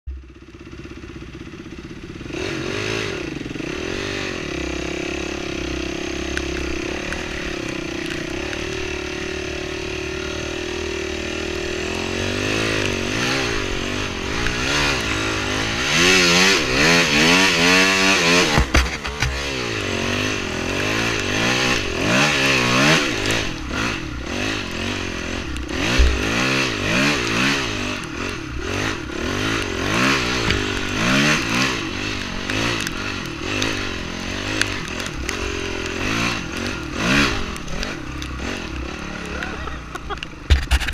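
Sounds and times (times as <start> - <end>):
dirt bike engine revving: 0.2 - 40.9
bike knocking over bumps: 18.3 - 19.6, 39.5 - 40.9.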